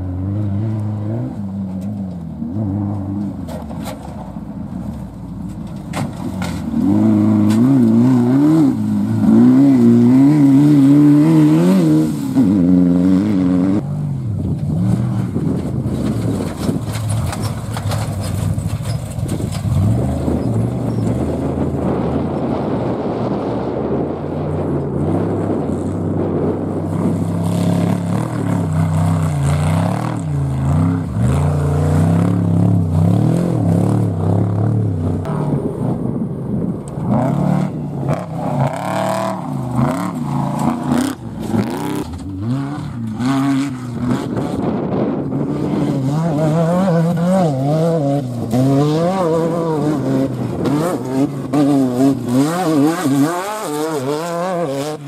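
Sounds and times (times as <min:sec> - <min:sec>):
engines revving: 0:04.9 - 0:55.0.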